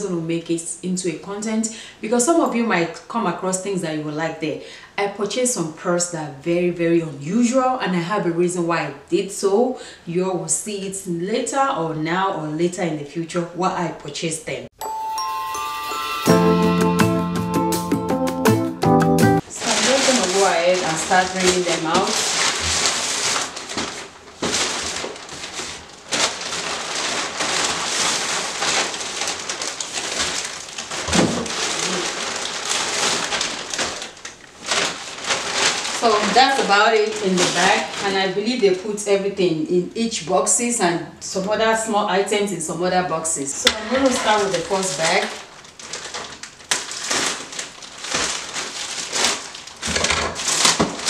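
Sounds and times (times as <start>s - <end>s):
plastic bags rustling and crinkling: 19.4s - 39.3s, 43.6s - 51.0s
sharp crackles or knocks: 19.8s - 36.0s, 45.8s - 51.0s
scissors cutting plastic: 45.9s - 51.0s.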